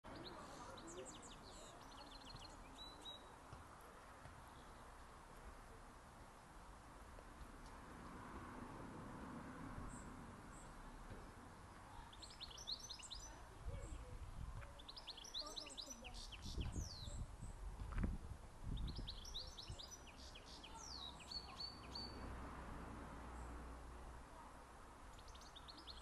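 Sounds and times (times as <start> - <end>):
songbird singing: 0.0 - 3.6, 4.3 - 5.0, 9.8 - 22.4, 25.0 - 26.0.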